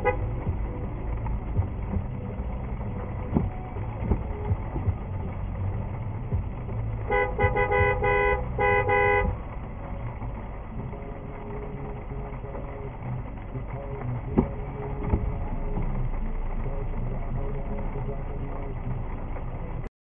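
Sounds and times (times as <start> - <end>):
car horn honks: 0.0 - 0.2, 7.1 - 9.4
road traffic rumble: 0.0 - 19.9.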